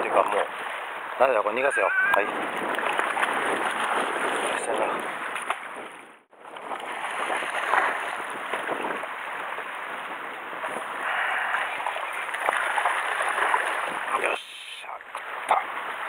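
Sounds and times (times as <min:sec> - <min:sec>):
sea water splashing against rocks: 0:02.2 - 0:14.4.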